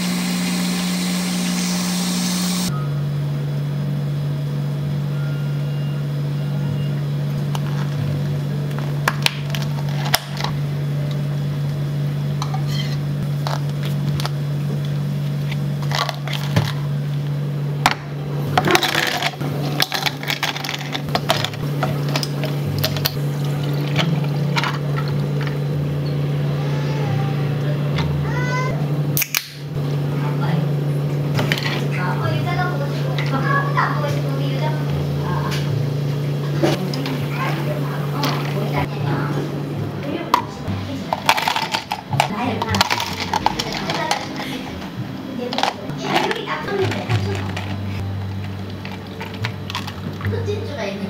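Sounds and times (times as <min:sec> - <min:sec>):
machine humming: 0:00.0 - 0:51.0
utensils clinking and clattering: 0:18.5 - 0:25.6, 0:41.1 - 0:50.4.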